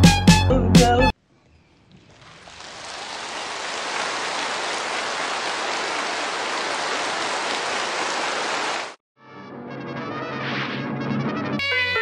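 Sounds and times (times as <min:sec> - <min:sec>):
large crowd applauding: 0:02.3 - 0:09.0.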